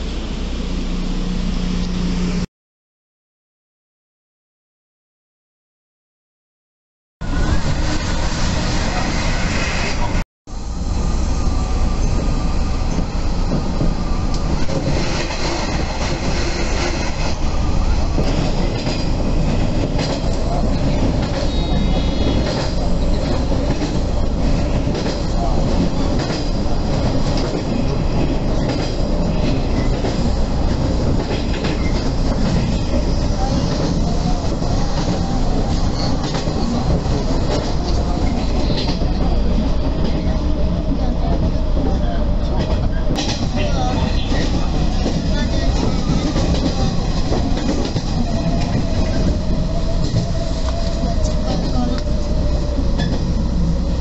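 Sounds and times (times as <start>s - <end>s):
train wheels and motors rumbling: 7.2s - 54.0s
clickety-clack of rail joints: 12.1s - 53.4s.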